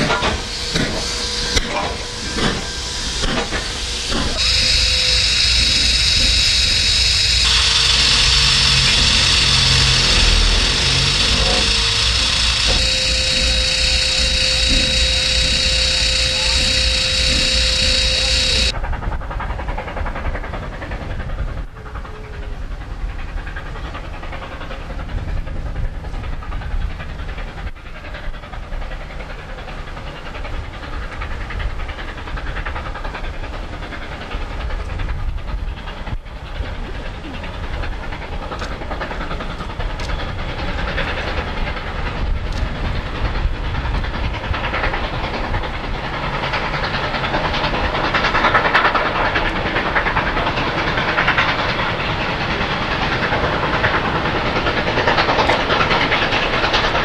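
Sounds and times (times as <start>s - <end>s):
steam train rumbling and hissing: 0.0s - 57.0s.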